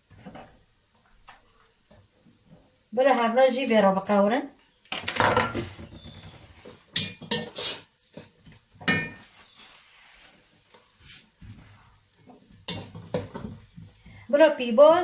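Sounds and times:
wooden spoon stirring vegetables: 0:05.9 - 0:14.9.

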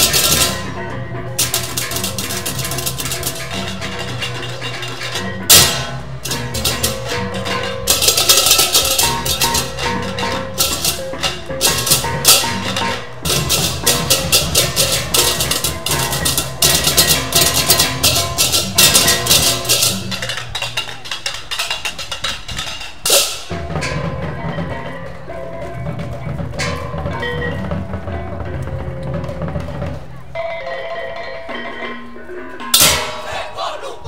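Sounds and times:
cymbals clashing: 0:00.0 - 0:25.6, 0:31.2 - 0:33.8
drums: 0:00.0 - 0:34.0.

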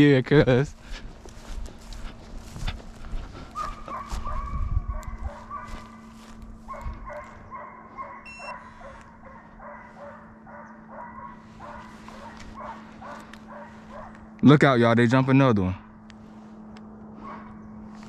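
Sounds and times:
footsteps in dry grass: 0:00.0 - 0:14.4, 0:15.9 - 0:18.0
hounds baying: 0:01.8 - 0:14.4, 0:17.2 - 0:17.7
short electronic beep: 0:08.3 - 0:08.6.

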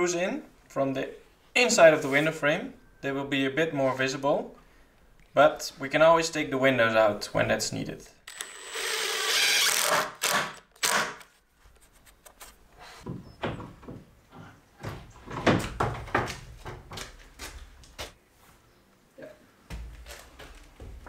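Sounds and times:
cordless drill driving screw: 0:08.3 - 0:11.3
wooden knocks and thuds: 0:13.0 - 0:17.2.

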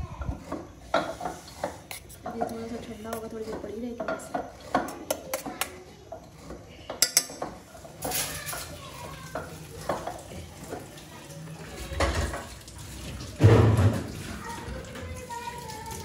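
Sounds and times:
utensils and dishes clinking: 0:00.0 - 0:16.0.

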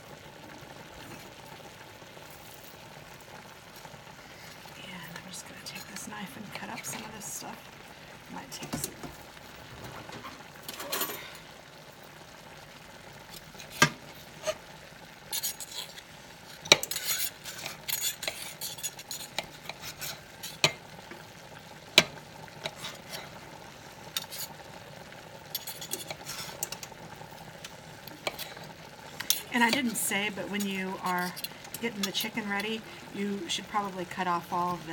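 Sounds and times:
faint food sizzling: 0:00.0 - 0:34.9
cutlery scraping a metal skillet: 0:10.1 - 0:11.4, 0:13.4 - 0:14.6, 0:15.3 - 0:20.8, 0:22.0 - 0:23.4, 0:24.0 - 0:24.6, 0:25.5 - 0:26.9, 0:28.1 - 0:32.8.

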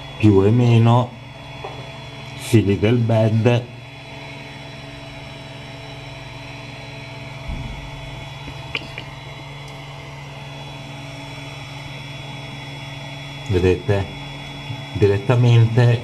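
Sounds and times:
electronics and fans humming: 0:00.0 - 0:16.0
low bump: 0:07.4 - 0:08.8.

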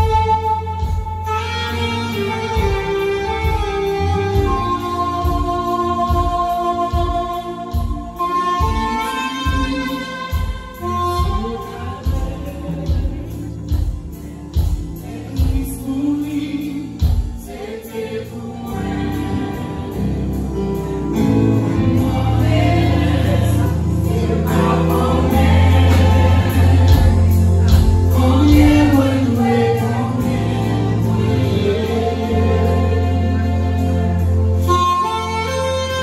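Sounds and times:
gospel choir singing with band: 0:00.0 - 0:36.0
heavy bass line: 0:18.2 - 0:36.0.

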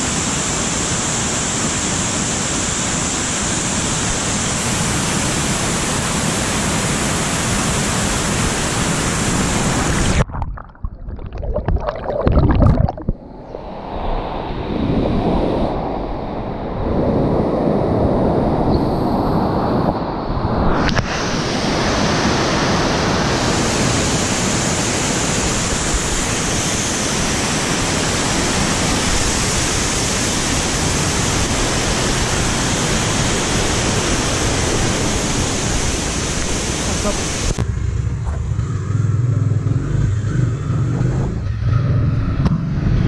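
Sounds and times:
water rushing down waterfall: 0:00.0 - 0:10.3, 0:20.8 - 0:37.6.

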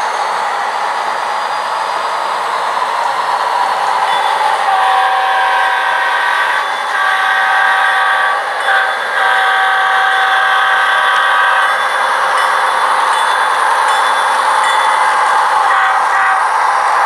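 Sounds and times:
model train horn blasts: 0:04.7 - 0:11.8, 0:15.6 - 0:16.5.

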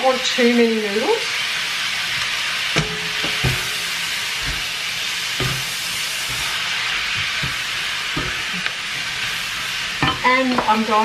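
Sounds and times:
food sizzling in a wok: 0:00.0 - 0:11.0
utensil knocking against pan: 0:02.8 - 0:04.7, 0:05.4 - 0:05.7.

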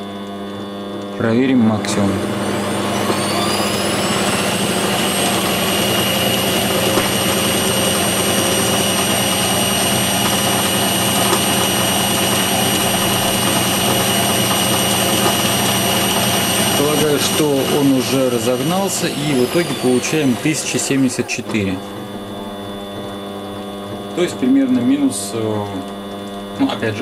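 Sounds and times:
lathe motor whine: 0:00.0 - 0:27.0.

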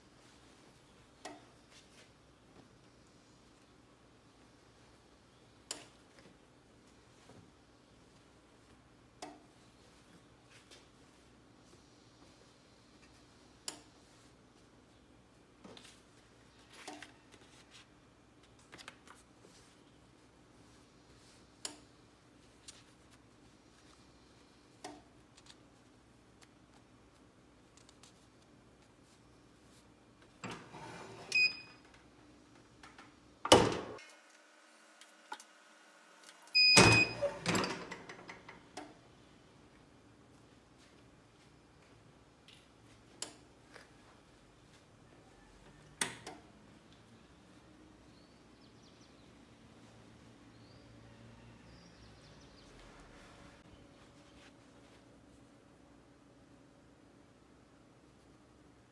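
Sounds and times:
paper and fabric rustling: 0:15.8 - 0:19.8.

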